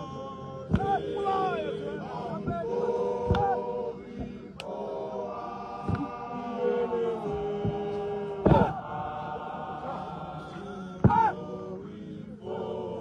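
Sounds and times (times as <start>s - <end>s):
men chanting in unison: 0.0s - 13.0s.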